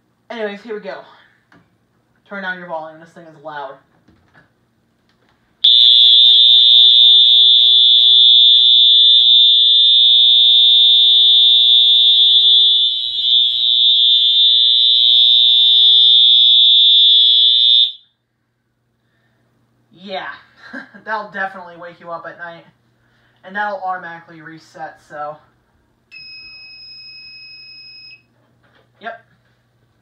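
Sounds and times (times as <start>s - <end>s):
fire alarm horn tone: 5.6s - 18.1s.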